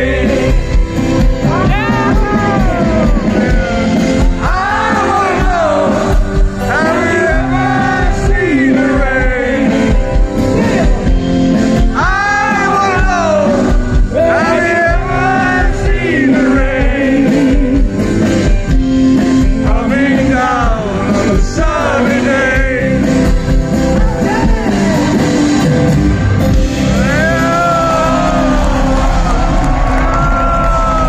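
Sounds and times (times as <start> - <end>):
person singing: 0.0 - 18.2
acoustic guitar: 0.0 - 31.0
live rock band playing: 0.0 - 31.0.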